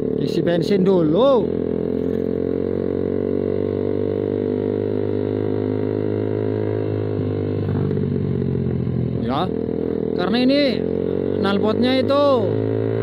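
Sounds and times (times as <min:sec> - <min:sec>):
motorcycle engine droning: 0:00.0 - 0:13.0.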